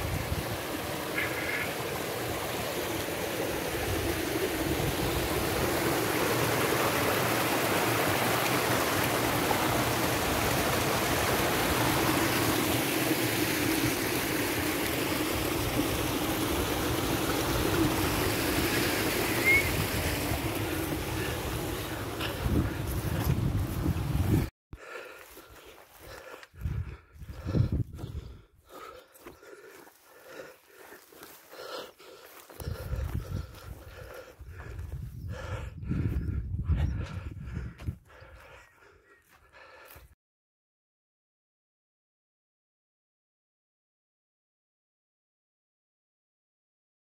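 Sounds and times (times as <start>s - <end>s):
stream running over rocks: 0.0s - 24.5s, 29.0s - 34.7s.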